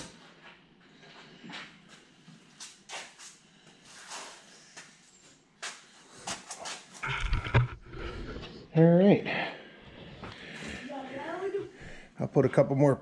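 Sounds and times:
camera handling rumble and clunks: 7.0 - 8.0.

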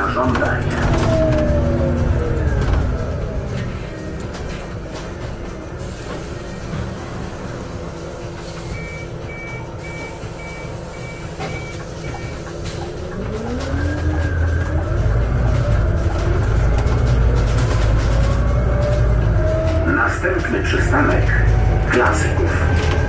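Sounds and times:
bus engine idling: 0.0 - 23.0
bus pulling away: 0.0 - 23.0.

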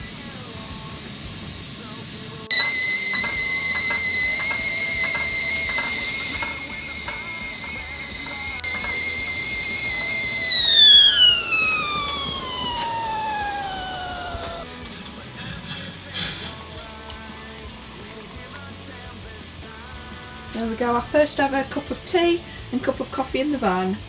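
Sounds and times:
kettle whistling: 2.5 - 14.8.

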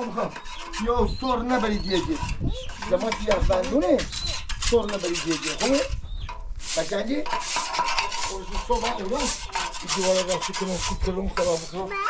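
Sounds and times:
broom sweeping stone path: 6.5 - 12.0.

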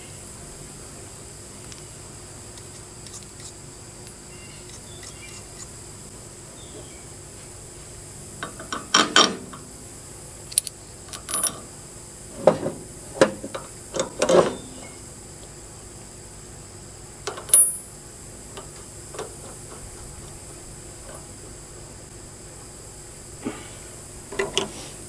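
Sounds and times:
wrench clinking on metal: 10.5 - 11.6, 17.5 - 17.9.

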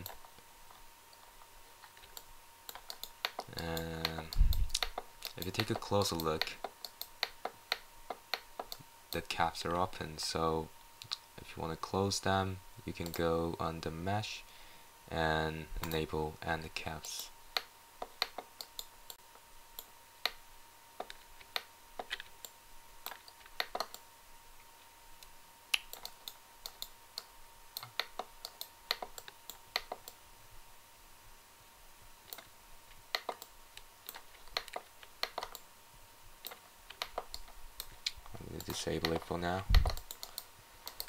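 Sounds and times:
computer mouse and keyboard clicks: 1.2 - 8.8, 15.8 - 16.0, 17.6 - 19.2, 21.0 - 24.0, 25.8 - 30.2, 33.1 - 35.7, 36.4 - 41.0.

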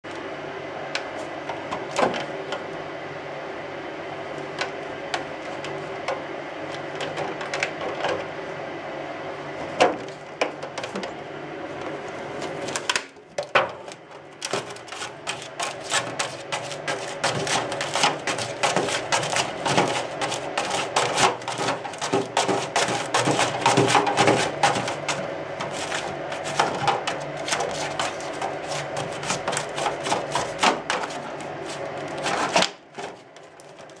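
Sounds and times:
cat scratching at plastic: 13.9 - 34.0.

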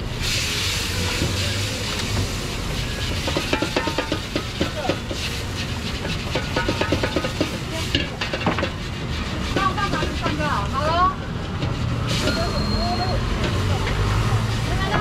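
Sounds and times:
water hissing in hot wok: 0.0 - 14.9
utensil scraping a wok: 0.2 - 15.0.

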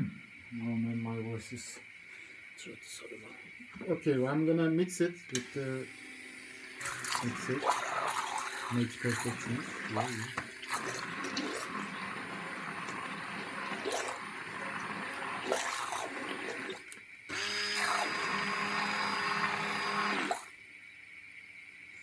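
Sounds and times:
stick blender beating eggs: 5.4 - 20.5.

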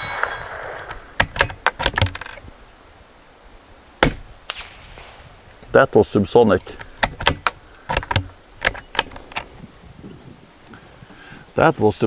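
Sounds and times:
struck steel target ringing: 0.0 - 1.4
rifle shot: 4.0 - 5.8.

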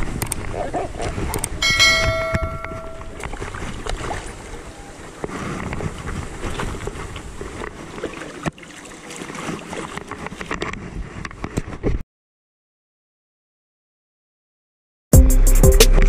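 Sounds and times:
wind rumbling on microphone: 0.0 - 8.6, 9.4 - 12.0.

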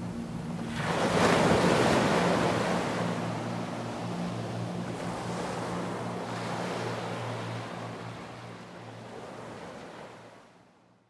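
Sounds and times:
low steady hum: 0.0 - 10.4.

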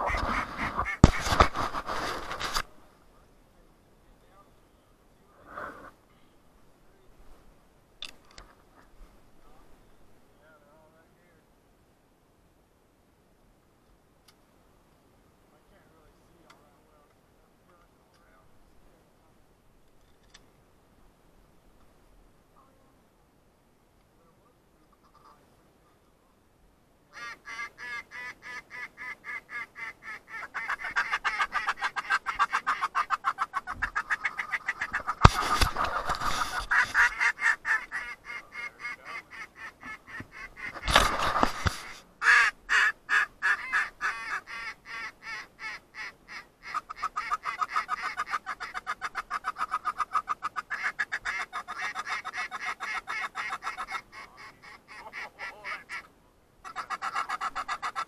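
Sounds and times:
waterfowl clucking: 0.0 - 1.9, 27.1 - 58.0
short rush of noise: 0.0 - 2.8, 40.7 - 42.0.

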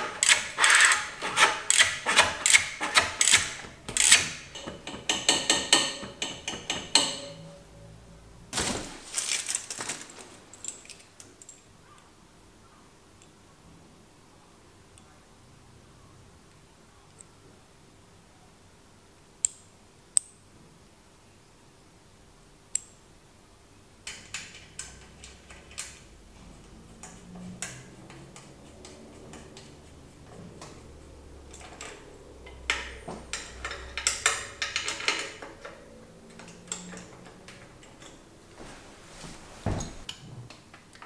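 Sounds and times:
metal brake parts clicking and rattling: 24.1 - 38.3.

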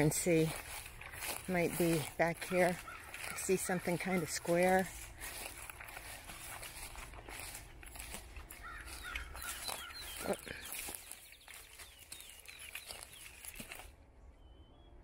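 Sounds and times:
footsteps through leaf litter: 0.0 - 14.0
bird chirping: 6.8 - 15.0.

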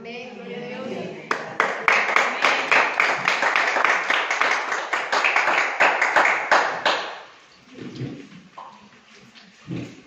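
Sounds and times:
crowd applauding: 1.3 - 7.3.

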